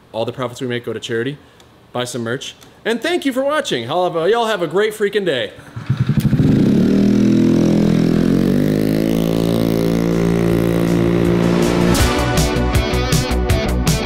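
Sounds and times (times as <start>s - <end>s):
small motorbike engine pulling away: 5.7s - 12.0s
music: 10.7s - 14.0s.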